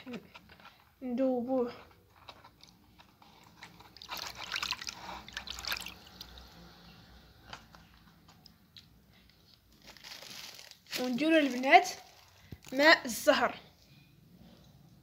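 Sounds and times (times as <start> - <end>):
hand swishing water in basin: 3.4 - 6.4.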